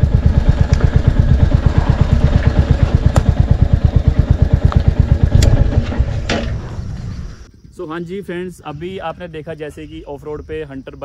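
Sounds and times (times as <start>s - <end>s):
motorcycle engine thumping: 0.0s - 7.5s.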